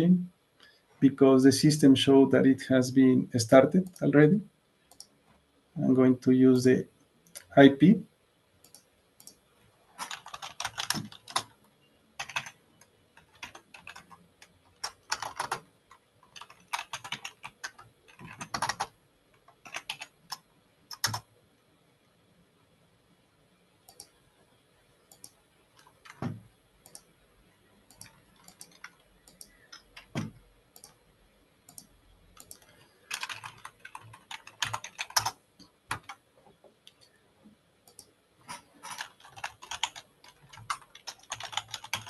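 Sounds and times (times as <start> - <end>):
typing on keyboard: 10.0 - 11.6, 12.2 - 21.3, 27.9 - 31.0, 31.7 - 36.2, 37.9 - 42.0.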